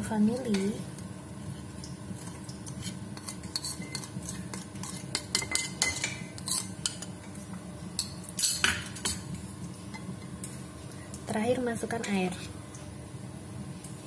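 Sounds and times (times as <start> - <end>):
low steady hum: 0.0 - 14.0
cutlery and dishes clinking: 3.2 - 7.1, 8.0 - 9.3.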